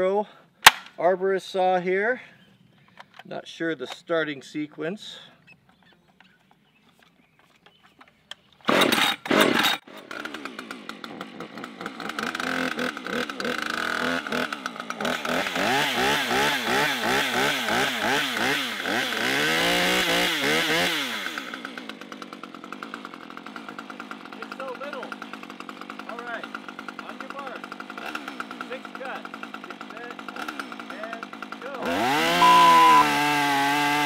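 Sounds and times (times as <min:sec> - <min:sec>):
chainsaw pull-start: 0:07.7 - 0:34.0
chainsaw engine revving: 0:08.6 - 0:34.0.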